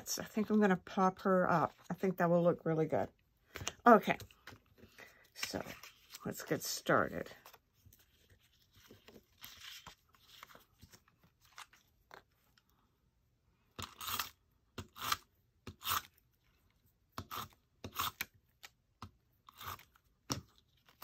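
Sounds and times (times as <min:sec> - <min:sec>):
paper handling: 0:07.3 - 0:12.3.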